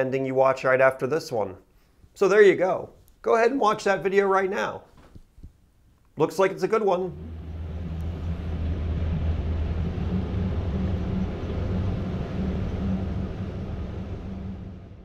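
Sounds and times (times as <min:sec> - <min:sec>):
water rushing: 0:07.0 - 0:15.0
motorboat engine droning: 0:07.1 - 0:15.0.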